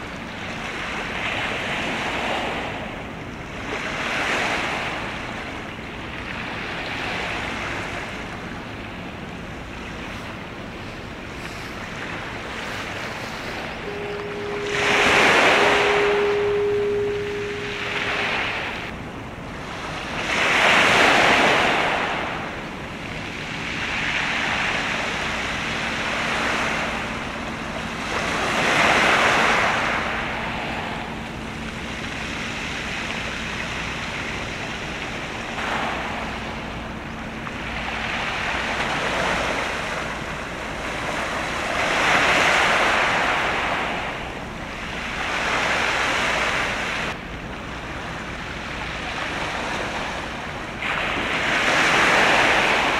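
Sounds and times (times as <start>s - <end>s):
waves washing against shore: 0.0s - 52.9s
wind on microphone: 9.9s - 22.6s.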